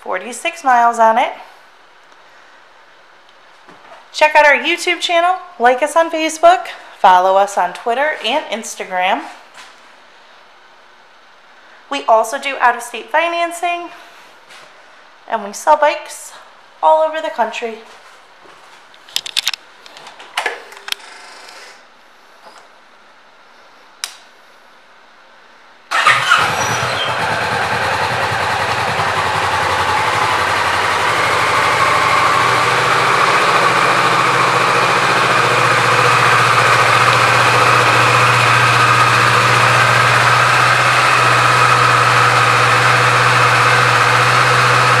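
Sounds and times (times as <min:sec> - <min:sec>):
motorcycle engine starting and idling: 0:25.9 - 0:45.0.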